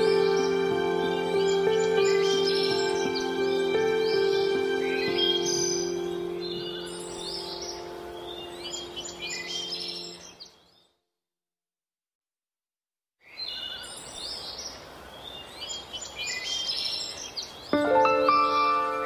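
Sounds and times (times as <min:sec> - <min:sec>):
soft music drone: 0:00.0 - 0:10.3, 0:17.8 - 0:19.0
birds chirping and trilling: 0:00.0 - 0:11.0, 0:13.2 - 0:19.0.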